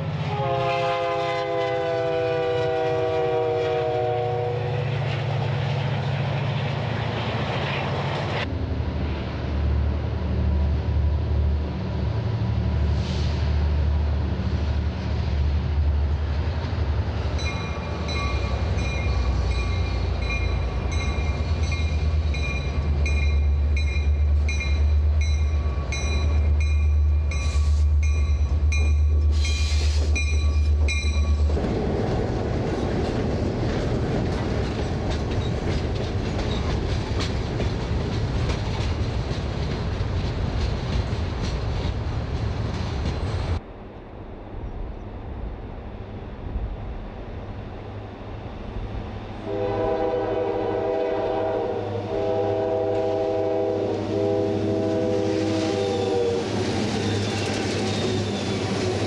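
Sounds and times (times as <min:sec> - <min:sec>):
diesel locomotive engine hum: 0:00.0 - 0:59.0
freight train rumbling past: 0:00.0 - 0:59.0
locomotive bell ringing: 0:17.3 - 0:29.2, 0:30.1 - 0:31.5
wheels clicking over rail joints: 0:17.3 - 0:43.6
air hissing: 0:29.2 - 0:30.2.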